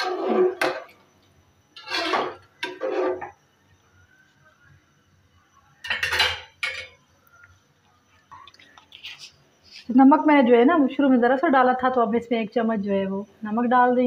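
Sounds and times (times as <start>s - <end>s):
ladle scraping a metal pot: 0.0s - 0.9s, 1.8s - 3.4s.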